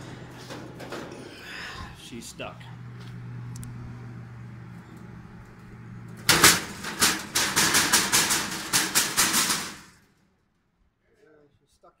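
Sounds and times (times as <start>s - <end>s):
steady low hum: 0.0s - 10.1s
steel plate knocking and rattling: 6.2s - 10.0s.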